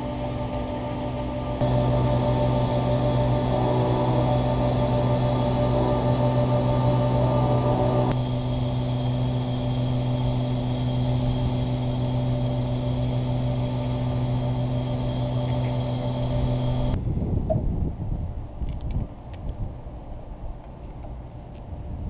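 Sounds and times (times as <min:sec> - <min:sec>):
diesel locomotive engine drone: 0:00.0 - 0:17.1.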